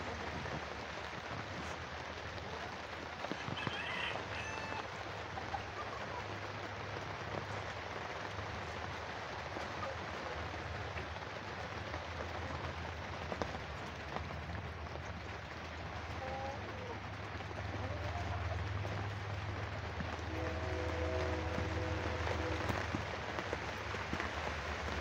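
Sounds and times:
heavy rain falling: 0.0 - 25.0
chicken calls: 3.2 - 6.6, 15.7 - 22.8.

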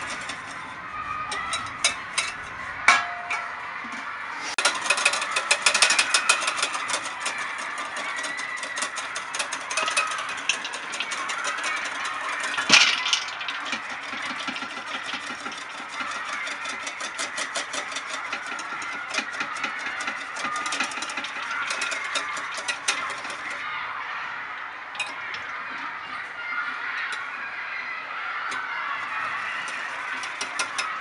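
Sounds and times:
whisk beating cream in bowl: 0.0 - 2.4, 4.5 - 23.6, 29.1 - 31.0.

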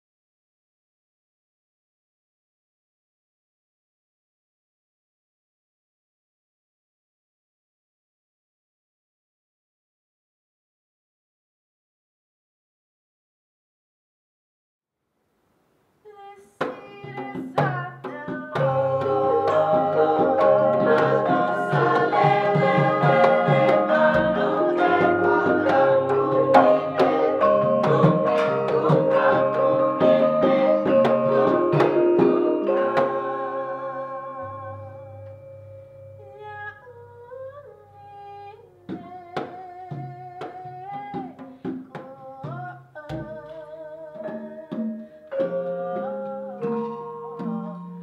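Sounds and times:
person singing: 16.1 - 35.3, 36.2 - 48.0
gamelan ensemble playing: 18.6 - 36.3, 44.2 - 48.0.

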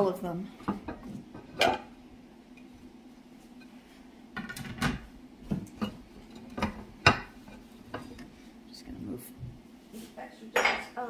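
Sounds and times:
dishes clinking and knocking: 0.6 - 2.0, 4.4 - 8.3, 10.6 - 11.0.

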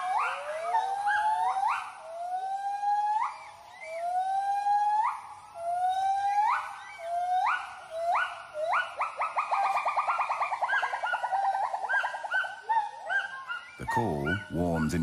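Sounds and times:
gibbons whooping hoots: 5.0 - 15.0.

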